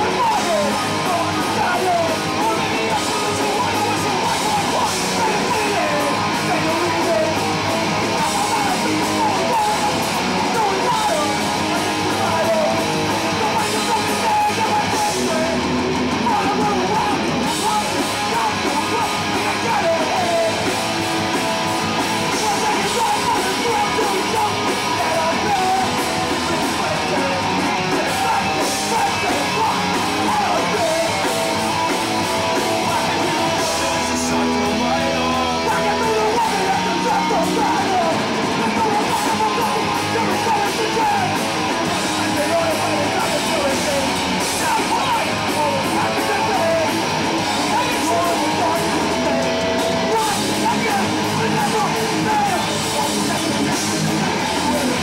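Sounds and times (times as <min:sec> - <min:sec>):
punk band playing live: 0:00.0 - 0:55.0
vocalist shouting into microphone: 0:32.8 - 0:55.0.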